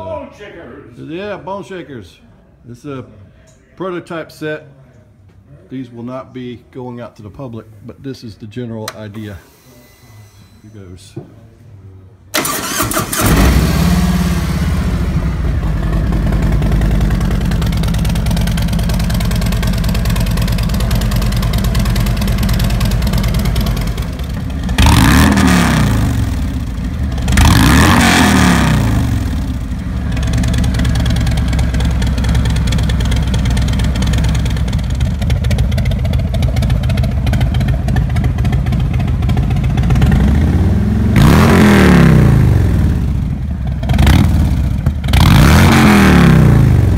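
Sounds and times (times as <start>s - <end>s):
motorcycle engine idling and revving: 12.4s - 46.9s.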